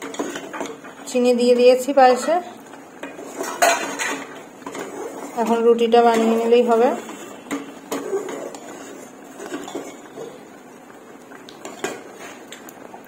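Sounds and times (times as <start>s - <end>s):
ladle stirring thick pudding: 2.1s - 12.6s
metal knocks and scrapes on pot: 3.0s - 6.4s.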